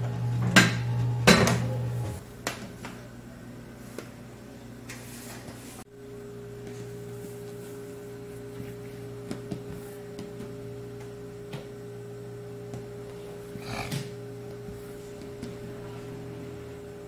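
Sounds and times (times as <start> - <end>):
machine hum: 0.0 - 2.4, 5.9 - 17.0
dough rubbing: 6.6 - 10.7.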